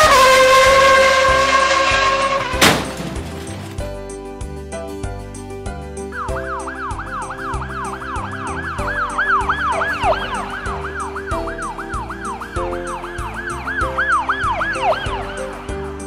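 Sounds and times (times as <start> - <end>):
background music: 0.0 - 16.0
siren yelping: 6.2 - 15.6.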